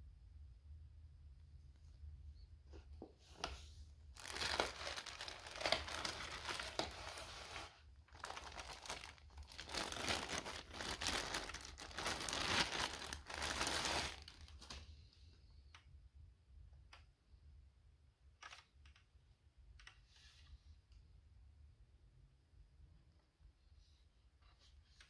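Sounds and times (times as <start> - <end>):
plastic bag crinkling: 4.2 - 14.8.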